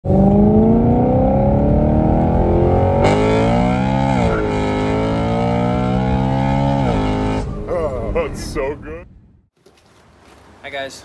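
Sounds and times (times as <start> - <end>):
car engine accelerating: 0.0 - 8.0.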